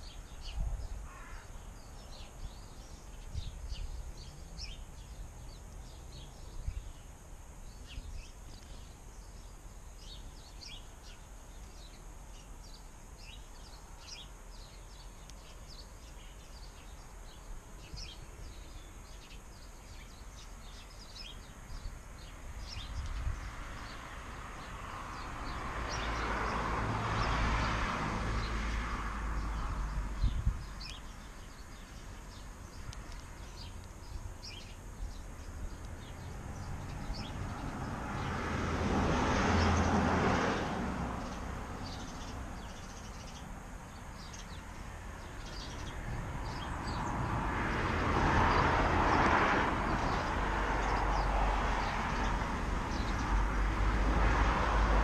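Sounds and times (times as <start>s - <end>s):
road traffic passing: 17.0s - 55.0s.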